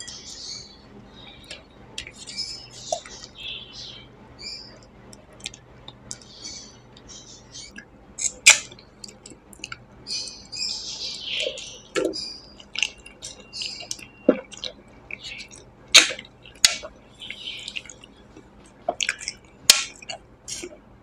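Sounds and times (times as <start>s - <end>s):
person eating with wet mouth sounds: 12.0s - 16.9s, 17.6s - 20.8s.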